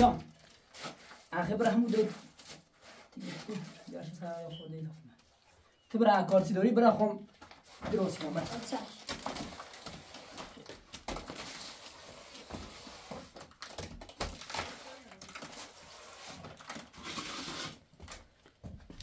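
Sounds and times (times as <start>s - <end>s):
hand scraping wet mud plaster: 0.6s - 4.0s.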